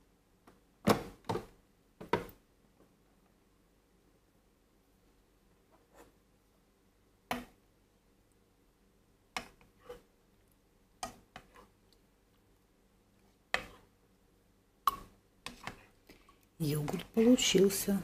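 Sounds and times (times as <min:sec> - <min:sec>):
plastic spoon scraping a bowl: 0:09.7 - 0:10.1.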